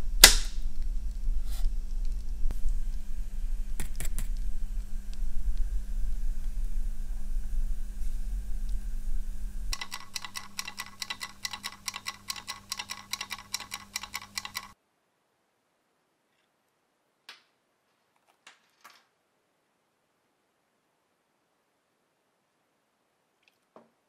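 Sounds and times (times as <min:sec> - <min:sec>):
low electrical hum: 0:00.0 - 0:24.0
faint clicks: 0:09.7 - 0:14.8
kitchen timer ticking fast: 0:09.7 - 0:14.8.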